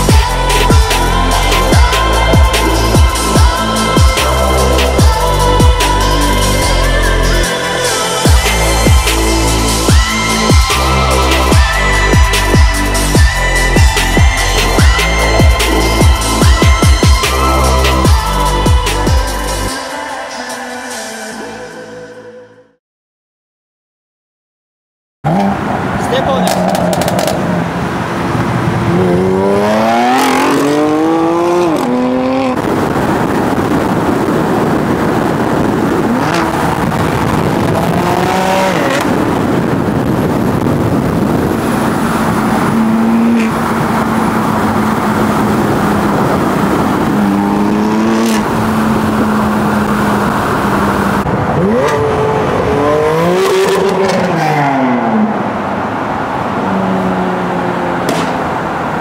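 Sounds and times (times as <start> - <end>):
car engine revving: 25.3 - 59.0.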